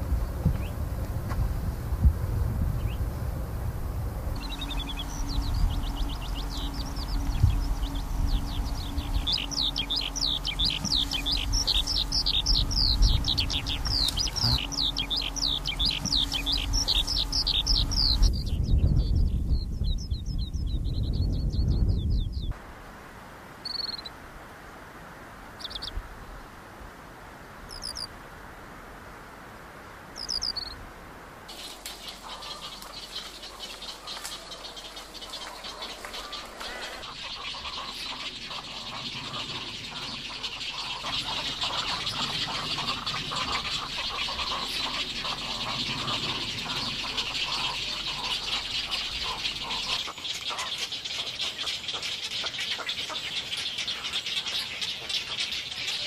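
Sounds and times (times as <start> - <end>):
skylark chirping calls: 4.3 - 22.5, 23.7 - 24.1, 25.6 - 26.0, 27.7 - 28.1, 30.2 - 30.8, 31.5 - 56.0
egret colony chattering: 4.4 - 18.3, 31.5 - 56.0.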